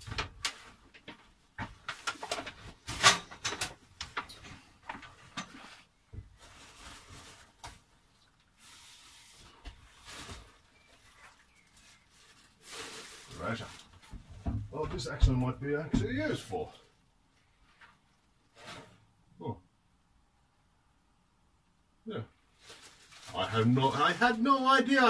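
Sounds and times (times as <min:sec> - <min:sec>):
objects knocking and shifting: 0:00.0 - 0:07.9
plastic bags rustling: 0:00.0 - 0:14.2, 0:22.5 - 0:25.0.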